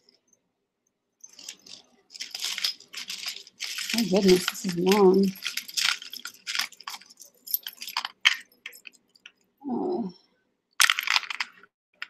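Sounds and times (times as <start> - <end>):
metal chain rattling: 1.2 - 9.4
plastic bag crinkling: 1.3 - 8.8.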